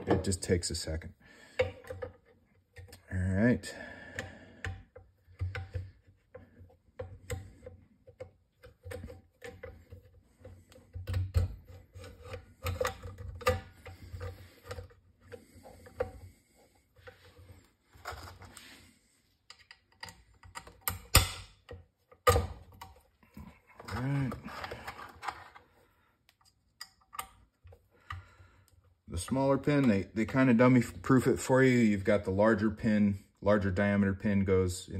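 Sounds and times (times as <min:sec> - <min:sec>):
small metal clicks and taps: 0:19.5 - 0:23.0, 0:26.3 - 0:28.3.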